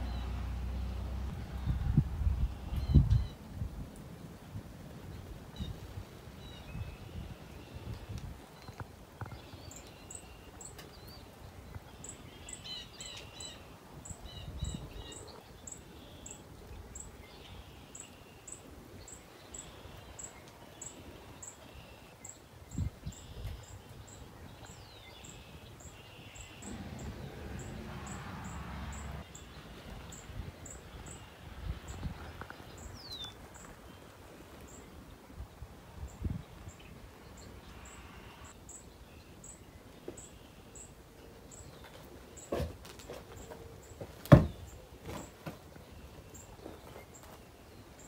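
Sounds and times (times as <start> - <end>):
birds calling: 6.4 - 48.0.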